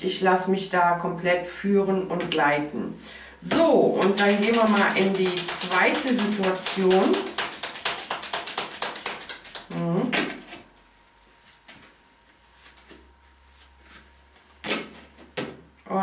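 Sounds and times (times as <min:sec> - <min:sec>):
cards shuffled by hand: 0:04.0 - 0:10.6.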